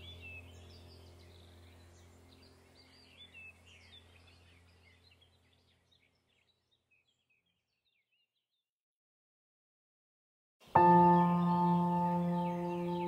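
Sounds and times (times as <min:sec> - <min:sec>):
steady low hum: 0:00.0 - 0:06.6
birds chirping and trilling: 0:00.0 - 0:08.7, 0:10.6 - 0:13.0.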